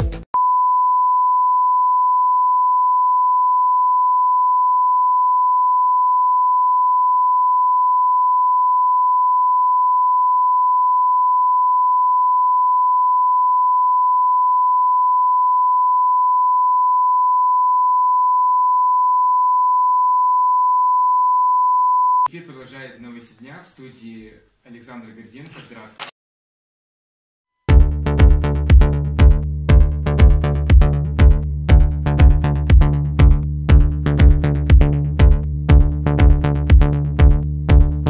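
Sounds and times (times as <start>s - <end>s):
music: 0.0s - 0.3s, 27.7s - 38.0s
sine test tone: 0.4s - 22.3s.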